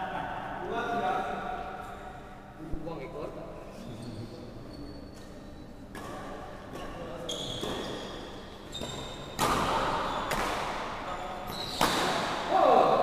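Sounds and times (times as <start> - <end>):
rackets smacking shuttlecock: 11.7 - 12.5.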